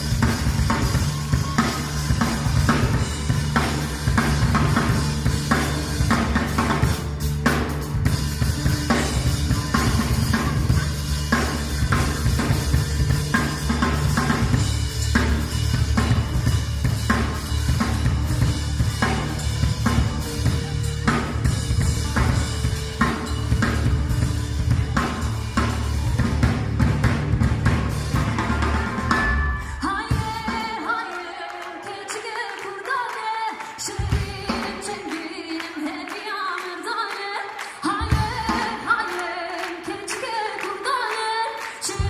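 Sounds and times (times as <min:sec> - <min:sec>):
low bass notes: 0:00.0 - 0:29.8
drum kit beat: 0:00.0 - 0:32.4, 0:37.6 - 0:40.3
live band playing dance music: 0:00.0 - 0:42.0.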